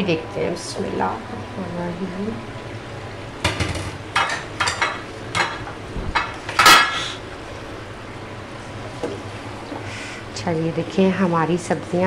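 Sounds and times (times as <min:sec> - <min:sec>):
metal cookware clinking: 0:03.4 - 0:06.9.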